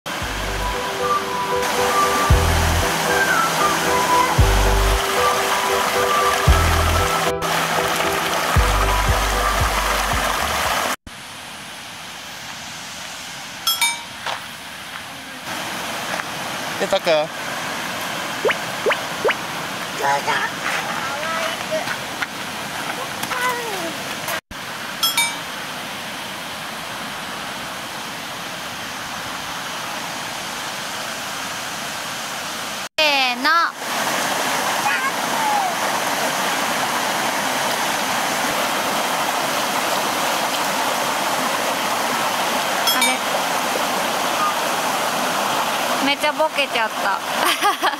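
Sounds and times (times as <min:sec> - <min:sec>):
river rushing over rocks: 0:00.1 - 0:32.9, 0:33.7 - 0:47.4
music with heavy bass beat: 0:00.2 - 0:00.8, 0:02.3 - 0:03.0, 0:04.4 - 0:05.2, 0:06.5 - 0:07.6, 0:08.6 - 0:10.9.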